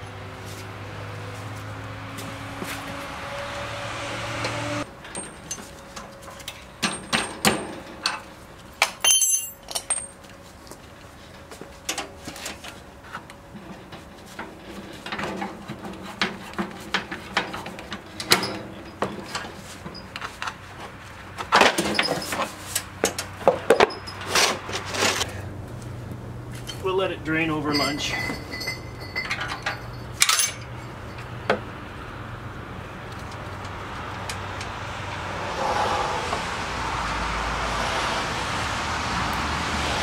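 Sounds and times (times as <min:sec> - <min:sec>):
metallic clicks and clinks: 0:27.6 - 0:31.3.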